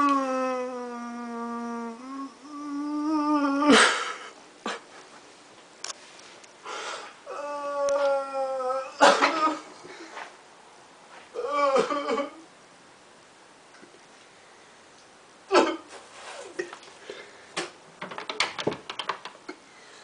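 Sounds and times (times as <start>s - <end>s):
man groaning with effort: 0.0s - 3.8s, 7.3s - 9.7s.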